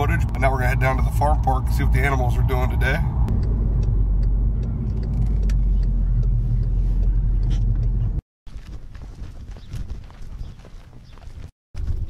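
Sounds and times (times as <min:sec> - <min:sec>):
road rumble inside moving car: 0:00.0 - 0:08.2
footsteps on pavement: 0:08.5 - 0:12.0.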